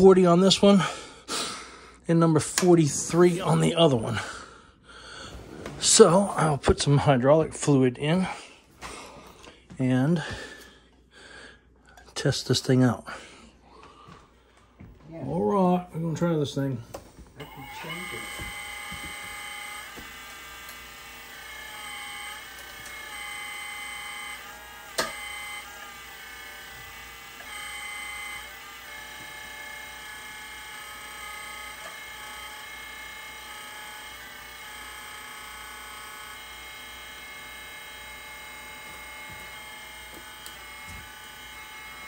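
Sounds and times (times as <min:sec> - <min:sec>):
hydraulic pump whining: 0:02.4 - 0:07.0, 0:16.9 - 0:42.0.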